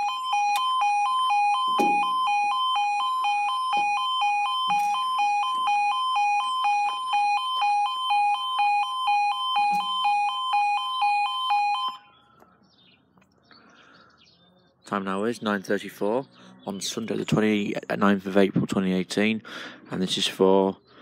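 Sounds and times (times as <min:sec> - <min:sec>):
two-tone crossing alarm warble: 0:00.0 - 0:12.2.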